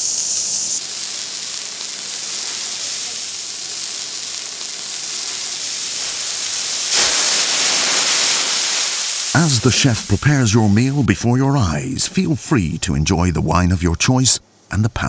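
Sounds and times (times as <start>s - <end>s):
flames flaring up: 0.0s - 11.1s
steak sizzling on griddle: 0.0s - 11.1s.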